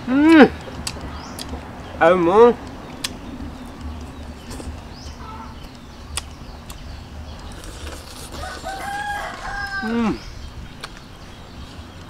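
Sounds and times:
rooster crowing: 8.4 - 10.2.

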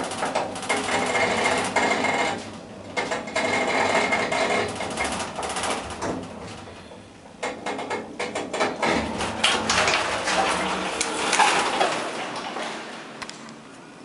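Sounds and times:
elevator doors clattering open: 0.0 - 13.2
elevator car stopping: 8.4 - 13.2.

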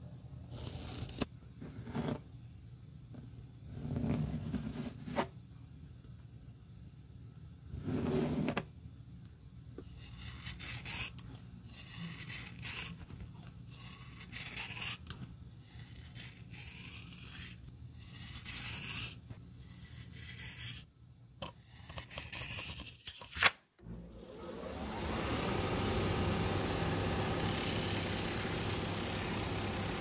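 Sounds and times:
knife cutting rubber: 0.5 - 2.2, 3.7 - 5.3, 9.8 - 23.3.

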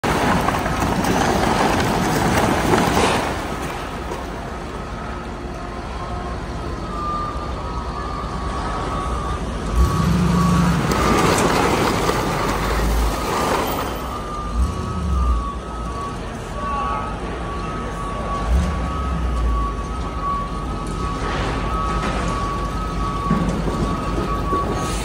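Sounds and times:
debris sliding and crashing onto concrete: 0.0 - 4.6, 10.4 - 14.6
truck engine running: 0.0 - 25.0.

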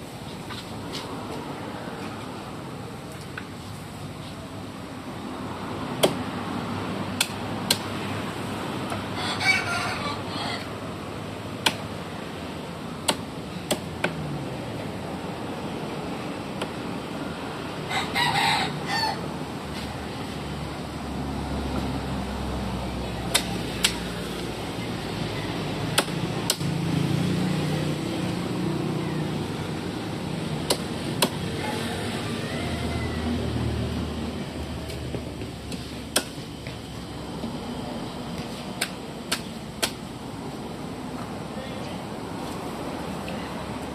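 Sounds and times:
cleaver chopping on wooden block: 6.0 - 6.2, 7.2 - 7.9, 11.6 - 11.9, 13.0 - 14.2, 23.3 - 24.0, 25.9 - 26.7, 30.6 - 31.4, 35.7 - 36.4
rooster crowing: 9.1 - 10.7, 17.9 - 19.2, 31.5 - 34.0.

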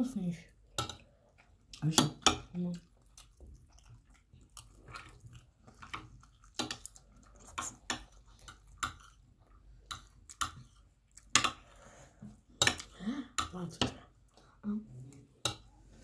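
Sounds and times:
chewing and mouth sounds: 2.6 - 11.6.

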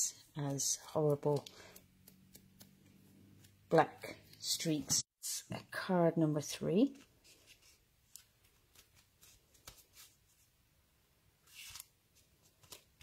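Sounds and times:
paper rustle: 11.5 - 13.0.

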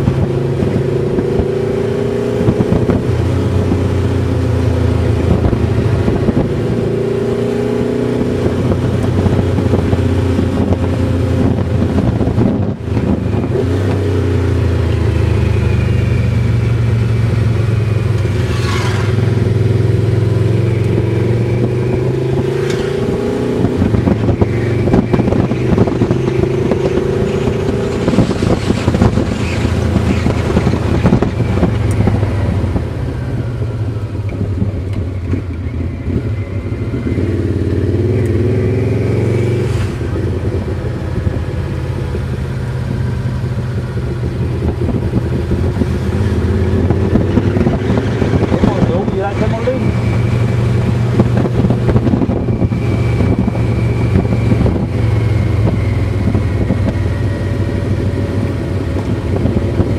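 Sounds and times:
motorcycle engine revving: 0.0 - 59.9
wind rush on microphone: 0.0 - 59.9.

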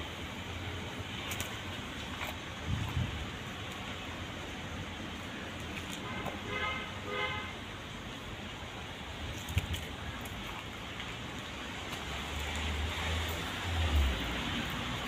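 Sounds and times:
outdoor background noise: 0.0 - 15.0
distant vehicle horn toots: 6.1 - 7.5.

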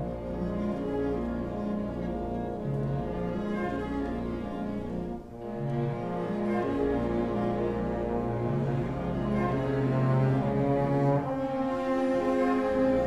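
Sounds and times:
cellos and basses holding notes: 0.0 - 13.0
orchestra playing: 0.0 - 13.0.

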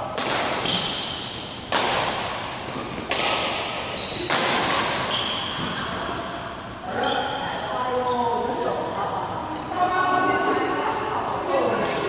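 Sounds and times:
racket hitting shuttlecock: 0.1 - 6.2
shoes squeaking on court: 2.7 - 6.2.

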